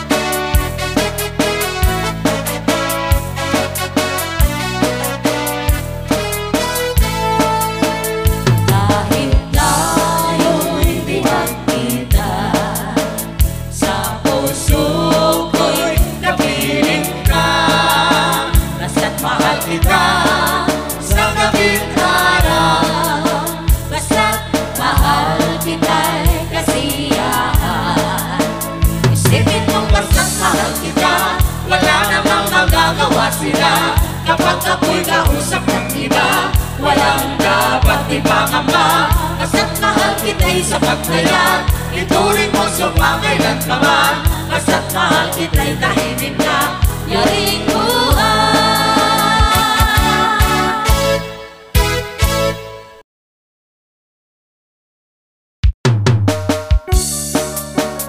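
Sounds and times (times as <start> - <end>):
person singing: 8.7 - 13.2, 29.2 - 51.0
heavy kick drum: 28.8 - 30.3, 49.2 - 50.6
heavy bass hits: 28.8 - 30.8.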